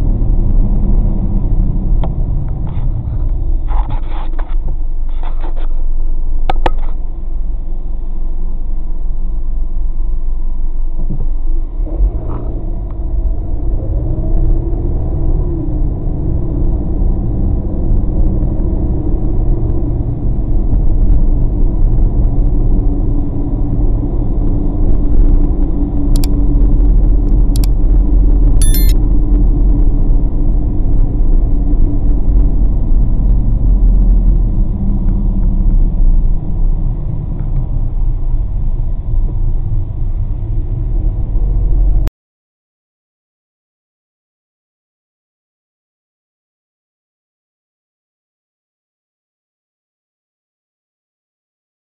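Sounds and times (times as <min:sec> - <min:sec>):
car engine and road noise: 0:00.0 - 0:42.1
sharp clicks: 0:27.3 - 0:27.7, 0:28.6 - 0:29.0
short chime: 0:28.6 - 0:29.0.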